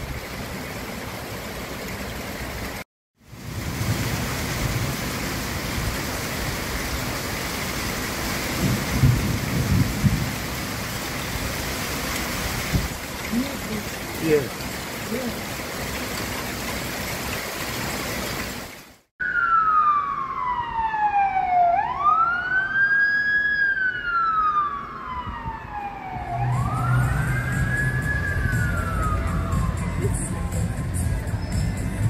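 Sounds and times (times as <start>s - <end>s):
heavy rain hissing: 0.0s - 19.1s
siren wailing: 19.2s - 30.4s.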